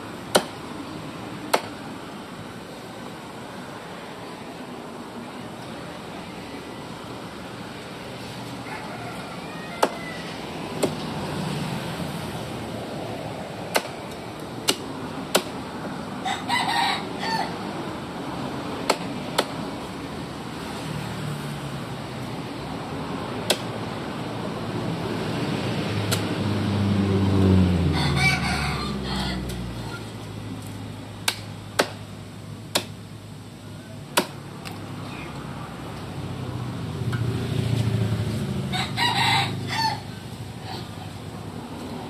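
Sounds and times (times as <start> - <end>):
cleaver chopping on wooden block: 0.3 - 0.6, 1.5 - 1.8, 10.8 - 11.1, 13.7 - 15.6, 18.8 - 19.6, 23.4 - 23.7, 31.2 - 32.0, 32.7 - 33.0, 34.1 - 34.8.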